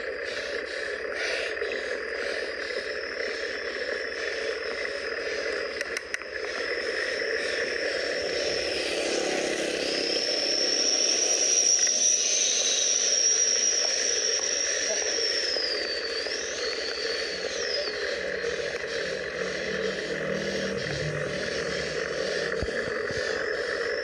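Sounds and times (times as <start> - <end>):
bicycle road and wind noise: 0.0 - 24.0
thin high whine: 0.0 - 24.0
van approaching: 3.7 - 11.8, 16.5 - 24.0.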